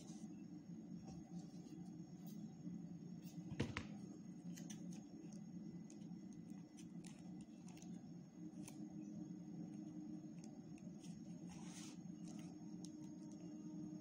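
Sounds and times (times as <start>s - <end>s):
steady low hum: 0.0s - 14.0s
faint ticks and paper rustles: 10.3s - 13.5s.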